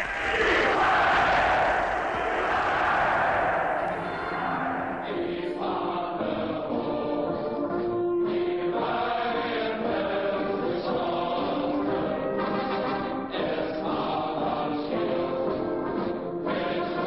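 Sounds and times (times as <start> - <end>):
choir-like voices: 0.0 - 17.0
slow solemn music: 3.8 - 17.0.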